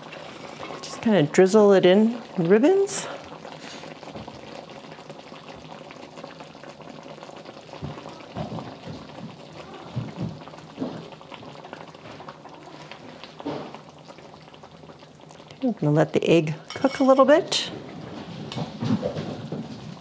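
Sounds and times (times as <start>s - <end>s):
gravy bubbling in a pan: 0.0s - 20.0s
gravy popping: 3.3s - 15.6s.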